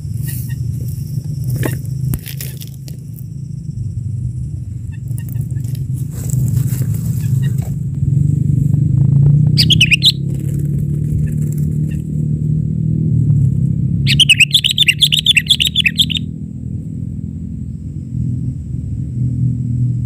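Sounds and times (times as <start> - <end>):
bulbul calls: 0.0 - 2.7, 7.1 - 7.8, 9.5 - 10.4, 11.1 - 12.1, 14.0 - 16.3
steady low hum: 0.0 - 20.0.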